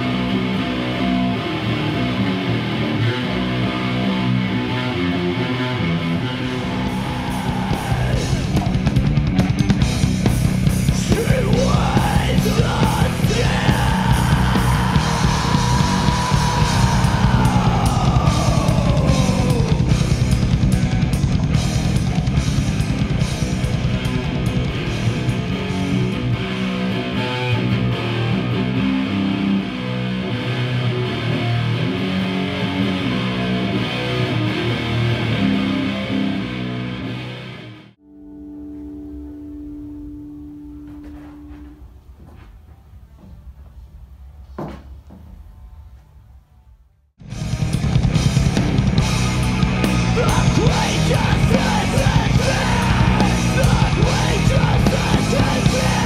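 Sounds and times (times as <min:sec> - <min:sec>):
distorted electric guitar: 0:00.0 - 0:42.6, 0:47.2 - 0:56.0
sliding bending high guitar notes: 0:00.0 - 0:42.7, 0:47.2 - 0:56.0
fast drums: 0:06.5 - 0:26.3, 0:47.2 - 0:56.0.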